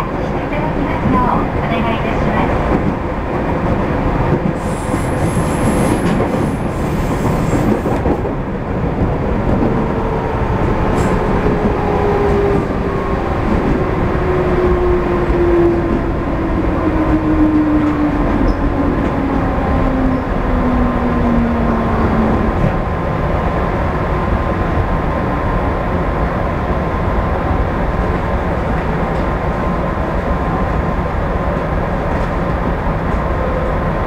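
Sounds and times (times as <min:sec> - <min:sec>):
train wheel squeal: 0:04.6 - 0:07.9, 0:18.4 - 0:18.7.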